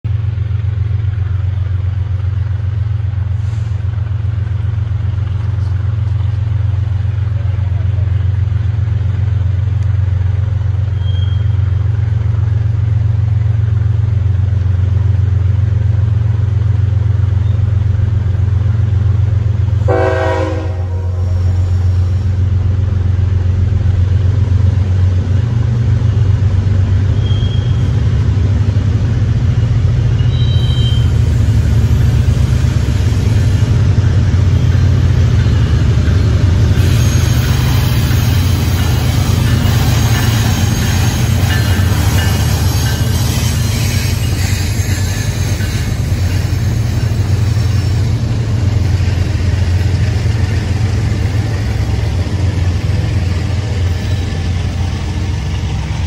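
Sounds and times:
diesel locomotive engine drone: 0.0s - 56.0s
train horn blast: 19.8s - 21.8s, 30.2s - 31.2s.

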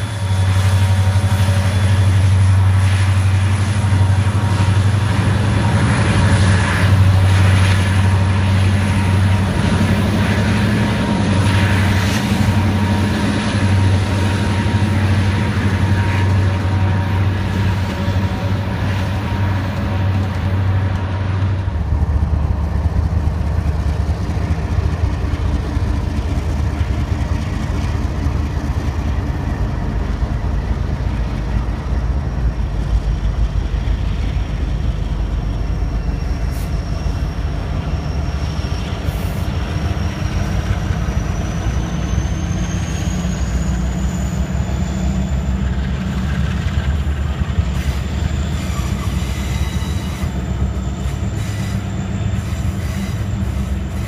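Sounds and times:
freight train rumble: 0.0s - 54.0s
high wheel squeal: 34.8s - 54.0s.

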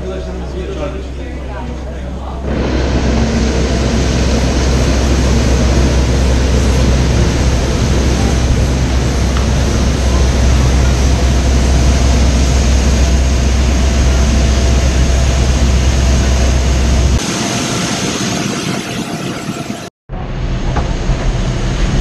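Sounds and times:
heavy low rumble: 0.0s - 18.4s
high turbine whine: 0.0s - 22.0s.

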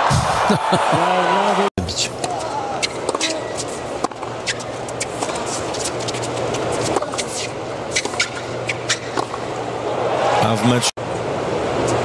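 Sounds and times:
tennis ball hits and bounces: 2.2s - 7.4s, 8.0s - 9.5s.

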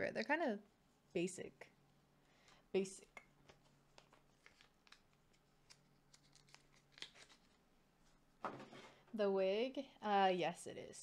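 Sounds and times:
ticks and rustles of card sleeves: 3.4s - 8.2s.

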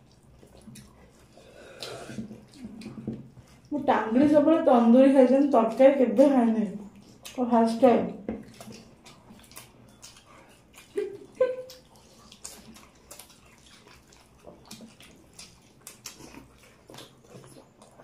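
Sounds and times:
wet smacking and chewing: 0.0s - 3.8s, 5.3s - 7.4s, 8.2s - 18.0s
fingers squishing food in gravy: 8.4s - 18.0s.

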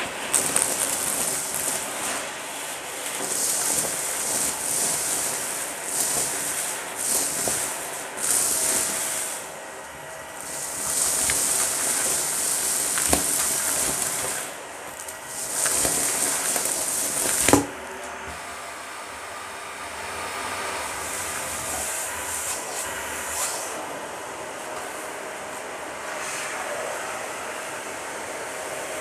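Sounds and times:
debris rattling up a hose: 0.0s - 17.8s, 20.8s - 23.6s
vacuum cleaner suction hiss: 0.0s - 29.0s.

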